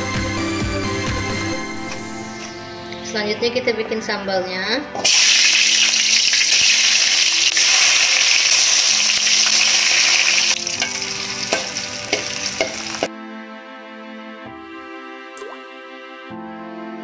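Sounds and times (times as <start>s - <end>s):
soft background music: 0.0s - 17.0s
food sizzling in hot oil: 5.0s - 13.1s
metal spatula tapping a wok: 10.8s - 13.1s.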